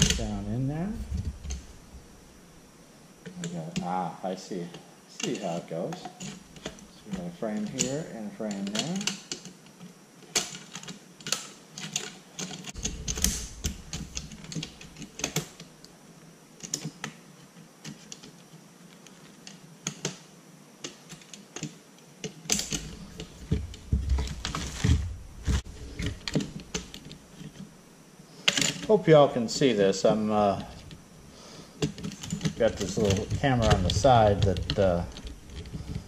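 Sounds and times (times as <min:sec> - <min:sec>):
plastic and metal parts clicking: 0:10.2 - 0:15.7, 0:28.4 - 0:28.9, 0:31.8 - 0:36.0.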